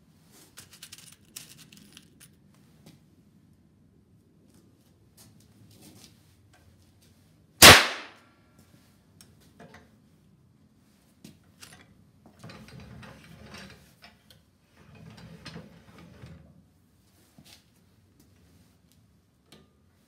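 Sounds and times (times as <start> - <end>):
metal cylinder rattling and scraping: 0.6 - 2.4, 12.4 - 16.5.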